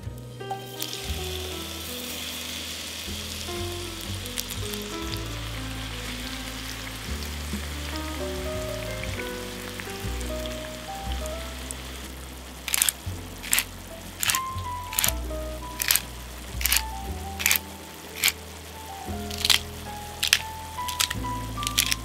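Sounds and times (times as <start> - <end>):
background music: 0.0 - 22.0
food sizzling in frying pan: 0.5 - 22.0.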